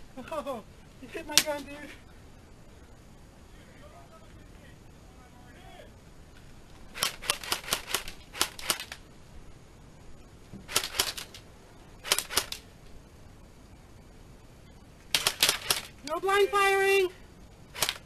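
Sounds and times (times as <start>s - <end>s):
airsoft gun bursts: 6.9s - 9.0s, 10.7s - 11.4s, 12.0s - 12.6s, 15.1s - 17.0s, 17.7s - 18.0s.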